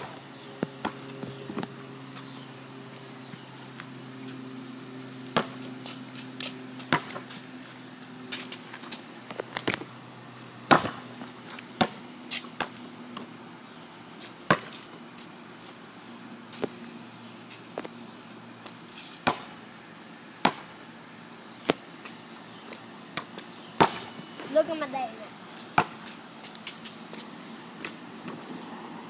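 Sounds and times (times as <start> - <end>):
basketball bouncing on concrete: 0.0 - 1.8, 5.3 - 10.0, 10.7 - 13.3, 14.2 - 14.9, 19.1 - 19.6, 20.4 - 20.8, 22.7 - 24.3, 25.7 - 28.6
steady low hum: 0.0 - 29.0.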